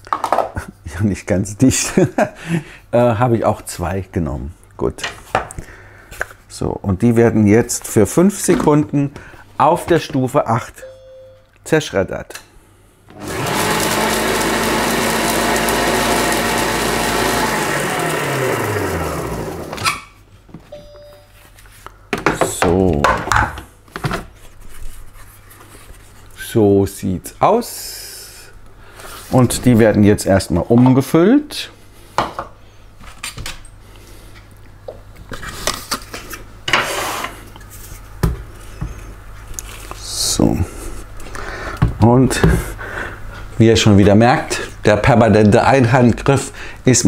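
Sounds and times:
food processor blade running: 0:13.1 - 0:19.8
motor winding down whine: 0:13.2 - 0:19.8.

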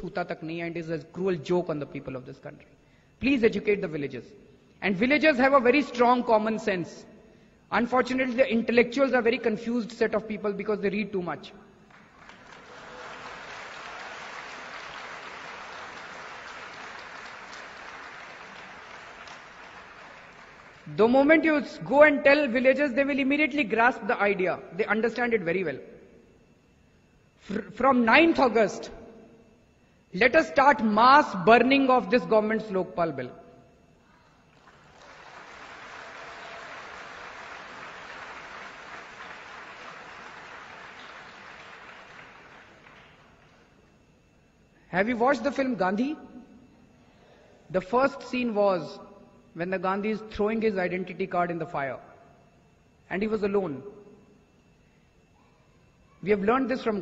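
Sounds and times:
audience applauding: 0:11.9 - 0:20.8, 0:34.6 - 0:43.6.

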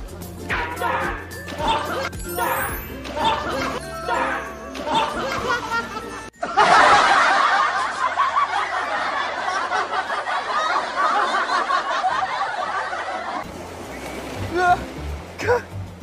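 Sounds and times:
loud continuous laughter: 0:00.7 - 0:13.4.

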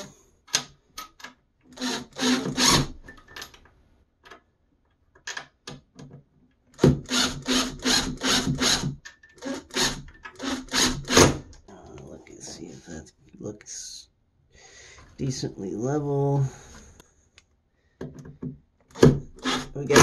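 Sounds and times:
impact driver driving screw: 0:01.8 - 0:03.0, 0:06.8 - 0:11.4, 0:18.9 - 0:20.0.

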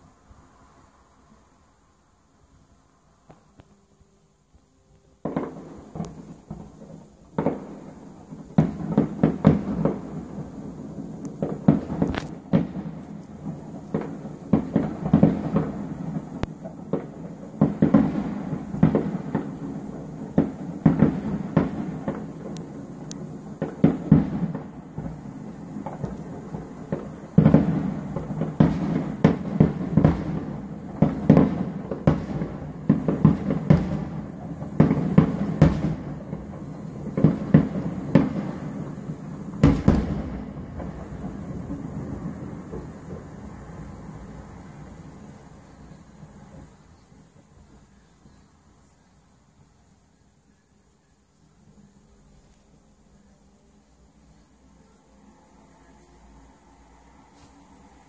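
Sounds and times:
firework shells bursting: 0:05.2 - 0:45.5.

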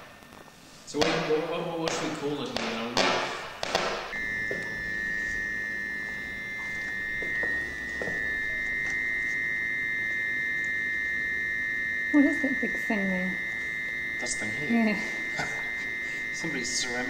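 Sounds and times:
high-pitched electronic buzzer tone: 0:00.9 - 0:17.0.

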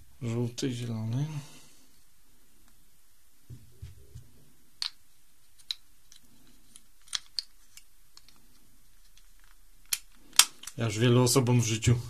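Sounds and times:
soft knocks: 0:03.5 - 0:04.4
plastic cube pieces clicking: 0:05.6 - 0:10.8.

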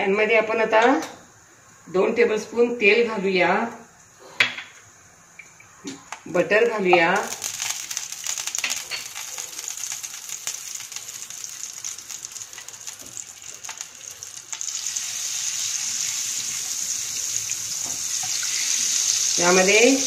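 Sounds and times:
butter sizzling in frying pan: 0:06.0 - 0:20.0.

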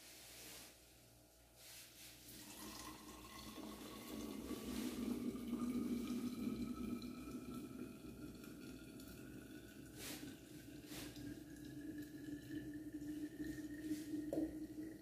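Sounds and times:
hot water pouring into filter: 0:02.2 - 0:15.0
coffee running into flask: 0:02.3 - 0:15.0.

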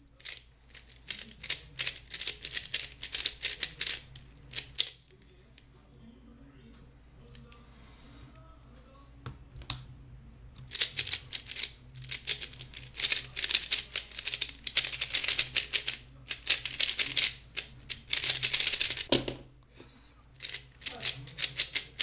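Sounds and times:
plastic puzzle cube clicking: 0:00.2 - 0:05.0, 0:10.7 - 0:19.1, 0:20.4 - 0:22.0.

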